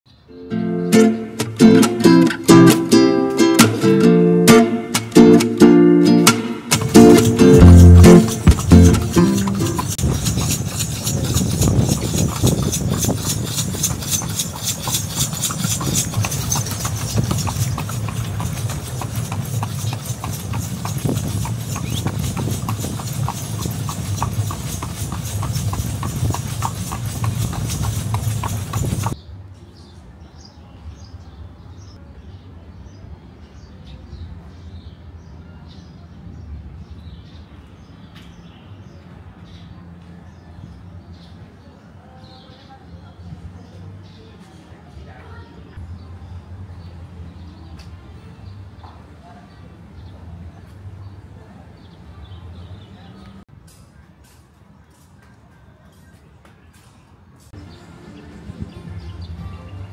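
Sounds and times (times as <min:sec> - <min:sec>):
horse hooves clip-clopping on road: 0:06.3 - 0:29.2.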